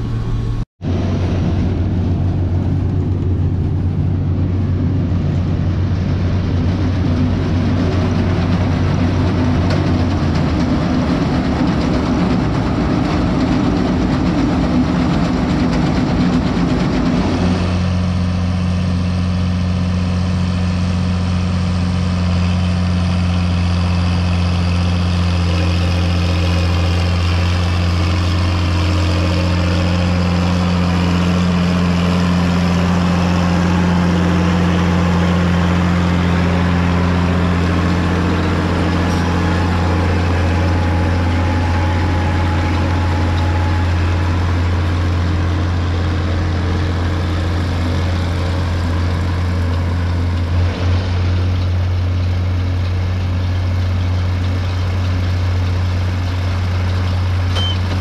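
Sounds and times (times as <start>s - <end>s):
diesel engine running: 0.0s - 58.0s
heavy rattling: 25.4s - 51.2s.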